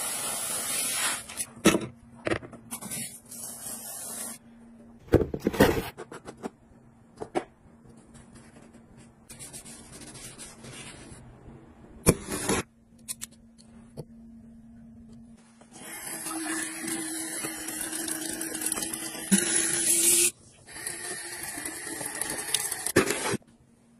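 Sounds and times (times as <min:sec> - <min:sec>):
rubbing and handling noises: 0:07.9 - 0:11.4.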